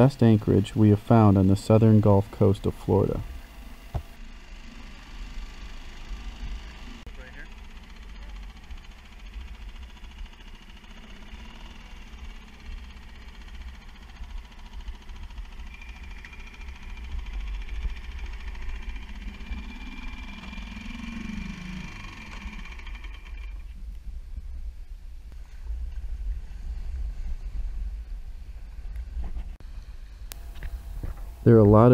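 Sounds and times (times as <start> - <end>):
outboard motor humming: 0.0 - 24.0
wind rumble on microphone: 23.7 - 29.6.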